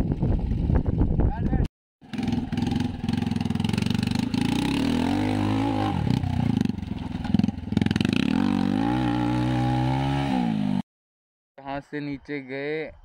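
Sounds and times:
motorcycle engine revving hard: 0:02.0 - 0:10.8.

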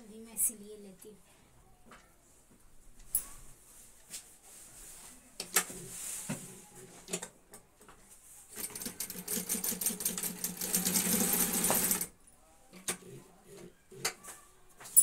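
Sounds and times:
sewing machine stitching: 0:08.6 - 0:12.1.

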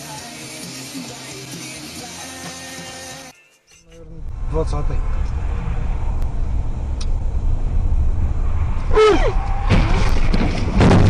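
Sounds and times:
car road and engine rumble: 0:03.9 - 0:11.0
short falling cry: 0:08.8 - 0:10.2
car crash knocks and bangs: 0:09.6 - 0:11.0.

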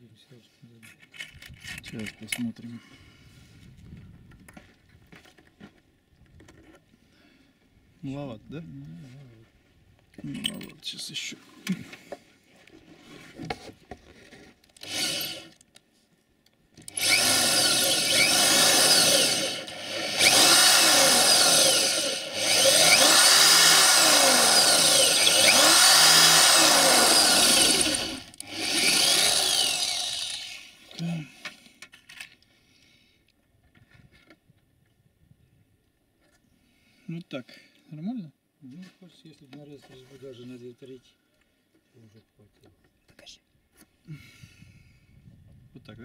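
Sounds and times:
electric drill boring into steel: 0:14.8 - 0:15.6, 0:16.8 - 0:30.9.

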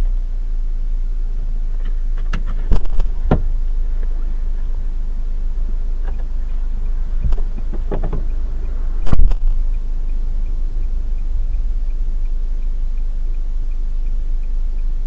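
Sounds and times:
low car cabin rumble: 0:00.0 - 0:15.0
faint regular ticking: 0:00.5 - 0:15.0
loud thump: 0:02.6 - 0:03.5
short knocks: 0:07.2 - 0:08.3.

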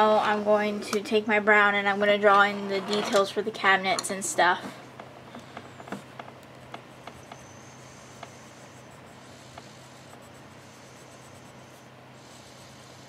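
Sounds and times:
faint low hum: 0:00.0 - 0:13.0
pencil scratching on paper: 0:06.6 - 0:13.0.

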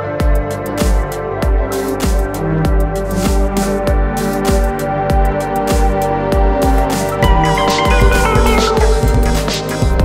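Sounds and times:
background music with drum beat: 0:00.0 - 0:10.0.

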